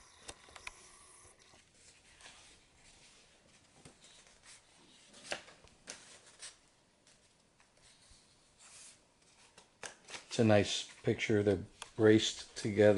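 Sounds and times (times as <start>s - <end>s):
stiff pages turning: 1.9s - 8.0s, 8.7s - 11.2s.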